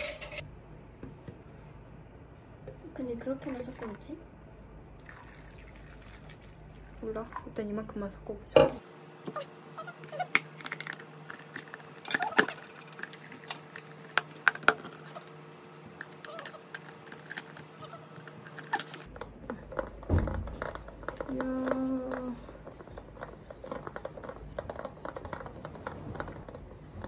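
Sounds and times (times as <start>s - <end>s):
low appliance hum: 0.0s - 27.0s
utensils clicking and tapping: 10.2s - 27.0s.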